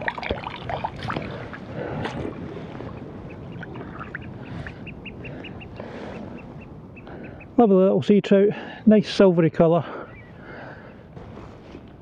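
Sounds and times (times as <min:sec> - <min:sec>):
shallow water splashing: 0:00.0 - 0:06.2.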